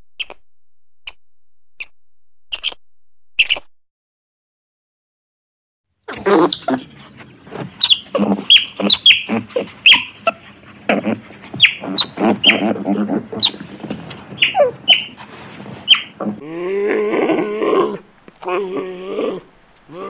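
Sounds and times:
low chattering calls: 6.1 - 20.0
parrots squawking: 7.8 - 10.4, 11.5 - 15.2, 15.9 - 16.2.

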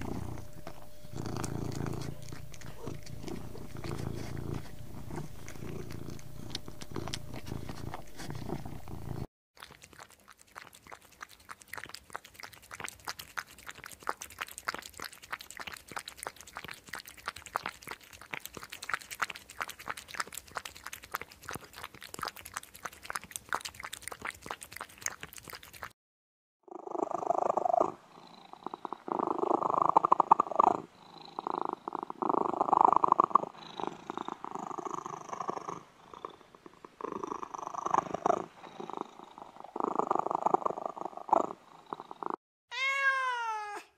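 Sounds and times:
cat purring: 0.0 - 9.3, 26.7 - 42.4
cat meowing loudly: 42.7 - 43.9.

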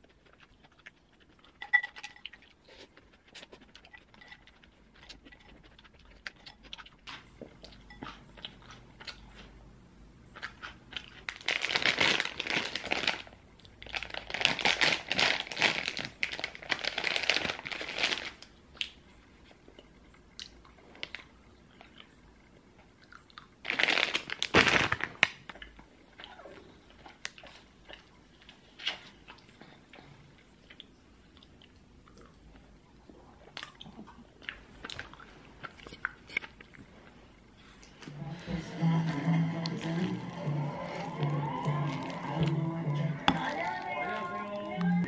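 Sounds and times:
plastic bag crinkling: 11.2 - 18.5, 23.6 - 25.6.

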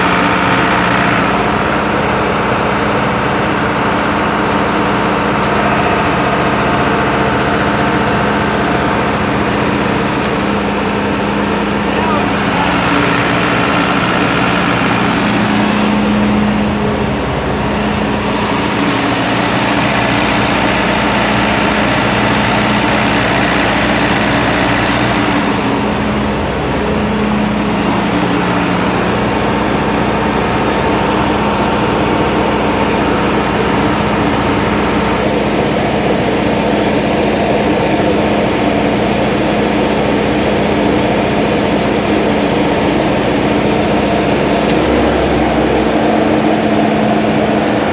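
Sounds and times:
diesel generator humming: 0.0 - 47.9.

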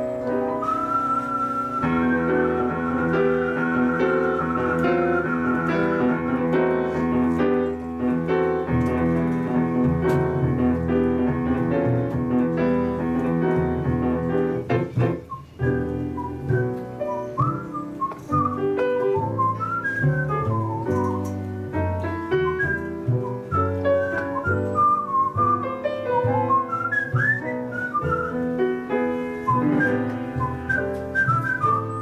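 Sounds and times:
whistled note: 0.0 - 7.8, 15.1 - 21.4, 22.3 - 32.0
jazz piano: 0.0 - 32.0
walking double bass: 0.0 - 32.0.

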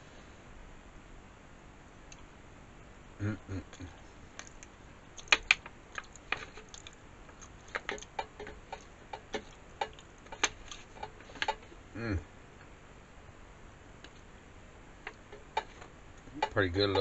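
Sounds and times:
chewing: 3.7 - 11.6.

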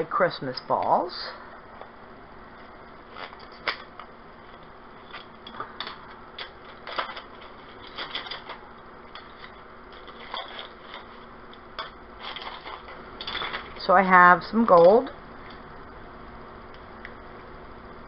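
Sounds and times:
craft supplies clicking and rustling: 5.1 - 11.1, 11.8 - 13.8.

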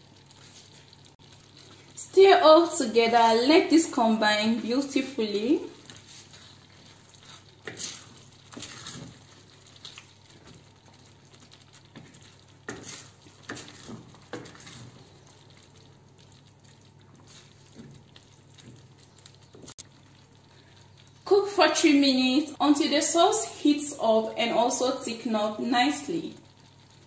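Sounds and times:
spoon stirring thick filling: 4.8 - 19.8.

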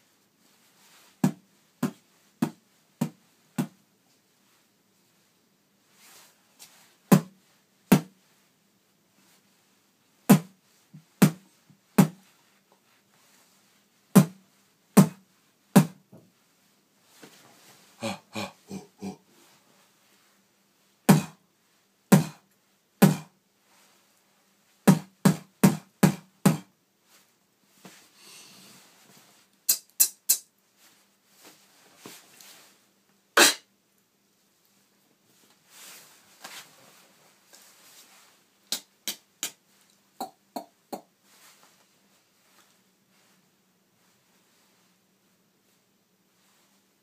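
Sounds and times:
beatboxing drum sounds: 21.1 - 21.4, 22.1 - 22.4, 23.0 - 23.3, 29.7 - 30.5, 33.4 - 33.7, 38.7 - 39.6, 40.2 - 41.1
breathy hissing: 28.1 - 28.8
short mouth clicks: 29.7 - 30.5, 38.7 - 39.6.

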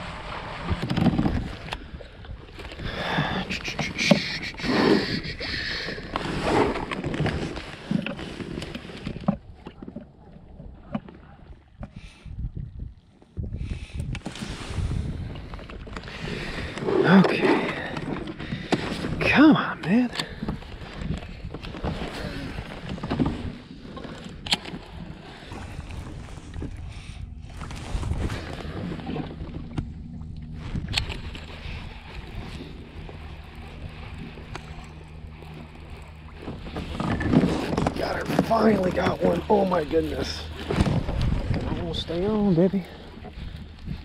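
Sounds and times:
wind on microphone: 0.0 - 7.7, 10.5 - 19.4, 24.4 - 35.2, 36.2 - 44.0
water lapping against hull: 0.0 - 44.0.

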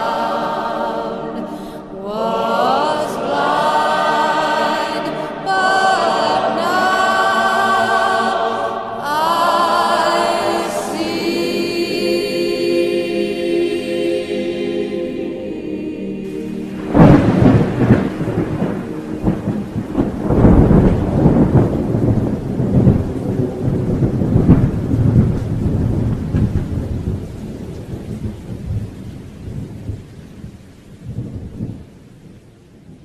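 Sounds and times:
rain: 0.0 - 11.9, 16.2 - 33.0
thunder rumbling: 16.2 - 33.0.

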